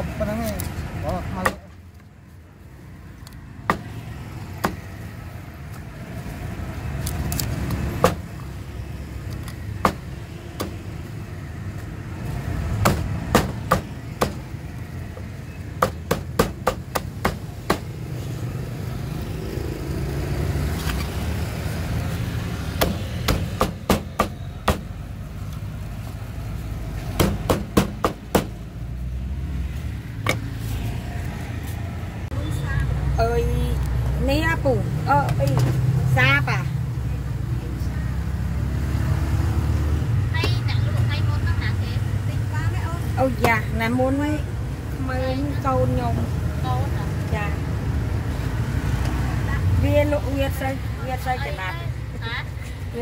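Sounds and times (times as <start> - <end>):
cleaver chopping on wooden block: 12.8 - 14.4, 15.8 - 17.9, 22.8 - 24.9, 27.2 - 28.6.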